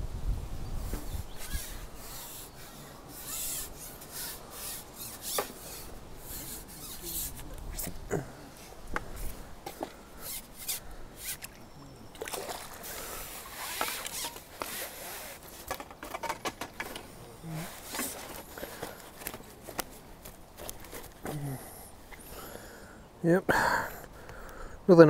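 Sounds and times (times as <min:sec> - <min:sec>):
fishing tackle clicks and scrapes: 0:00.9 - 0:08.0, 0:08.9 - 0:21.4
water splashing: 0:10.6 - 0:14.6.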